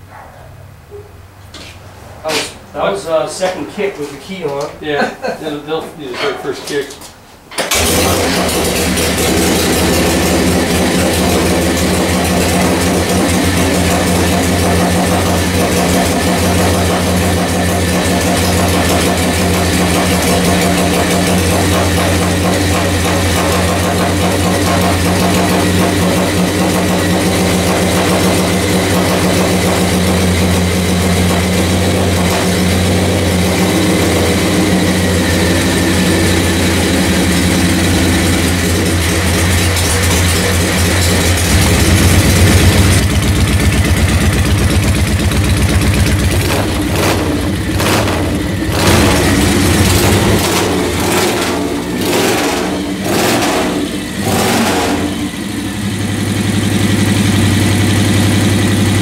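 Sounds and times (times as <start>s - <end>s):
motorcycle engine idling: 8.2s - 59.0s.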